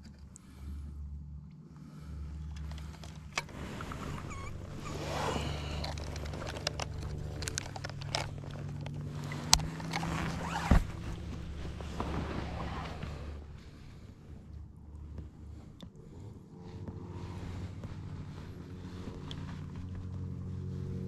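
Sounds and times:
steady low hum: 0.0s - 21.0s
handling rustling: 2.4s - 13.8s.

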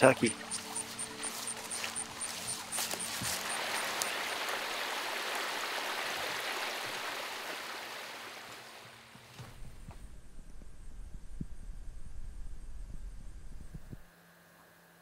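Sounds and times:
water trickling over rock: 0.3s - 7.6s.

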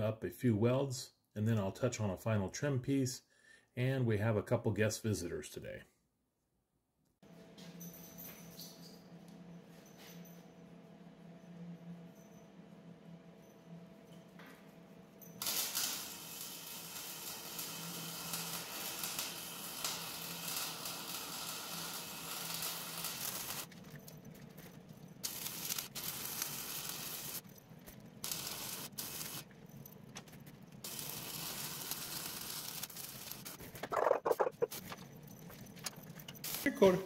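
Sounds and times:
welding arc crackling: 15.4s - 23.7s, 25.2s - 27.4s, 28.2s - 29.6s, 30.8s - 34.8s, 36.4s - 37.0s.

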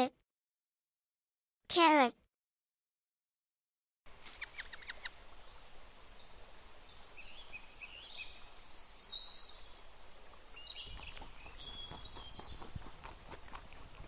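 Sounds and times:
steady outdoor hiss: 4.1s - 14.0s
birds chirping and singing: 7.2s - 12.7s.

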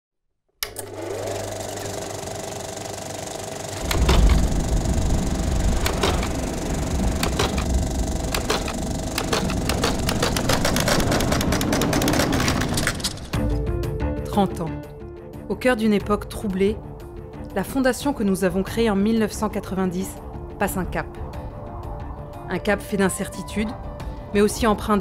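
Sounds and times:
film projector whir: 0.6s - 12.8s
low rumble: 3.8s - 13.5s.

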